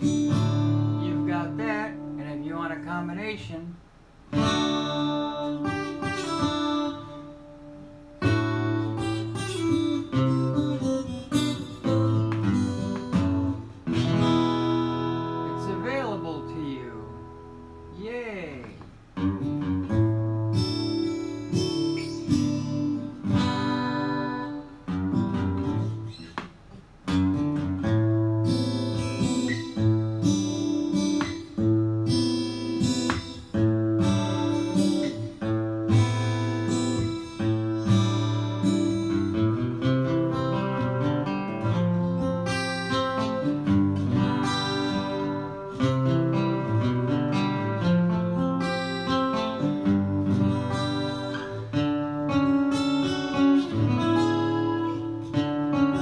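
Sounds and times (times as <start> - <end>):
fingerpicked acoustic guitar: 0.0 - 56.0.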